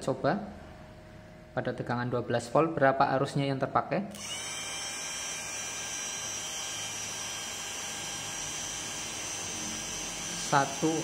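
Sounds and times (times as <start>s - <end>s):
electric motor whining: 4.1s - 11.0s.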